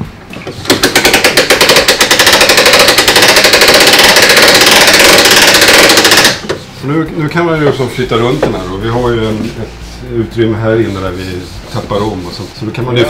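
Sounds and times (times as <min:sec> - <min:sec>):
hand winch ratchet clicking: 0:00.7 - 0:06.4.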